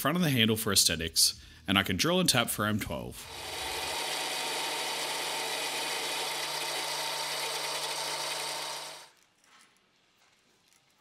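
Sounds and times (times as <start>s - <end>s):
lathe drill cutting metal: 3.3s - 9.1s.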